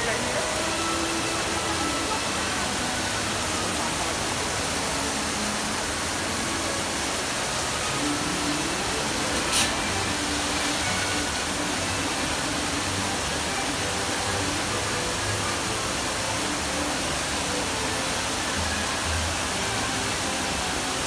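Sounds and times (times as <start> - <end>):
fountain water splashing: 0.0 - 21.0
brief sharp hiss: 9.3 - 11.1.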